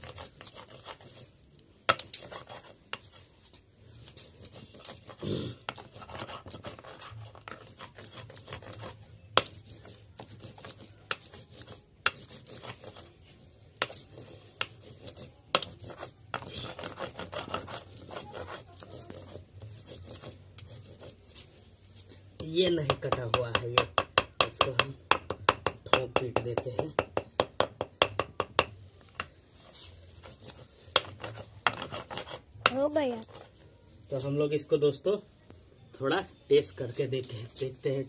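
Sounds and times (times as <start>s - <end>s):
stone grinding gritty rasp: 0.0s - 21.5s, 29.6s - 33.5s
stone knocking on stone: 22.4s - 29.4s.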